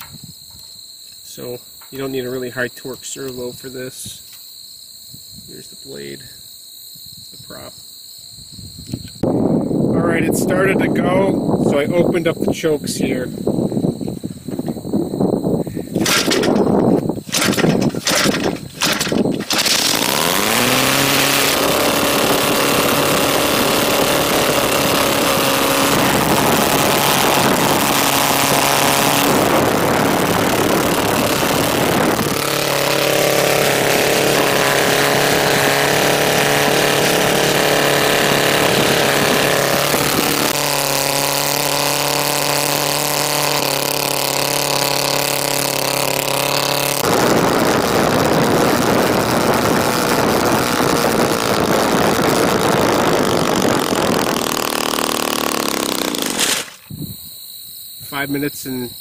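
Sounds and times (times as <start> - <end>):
two-stroke engine with propeller: 15.9 - 56.8.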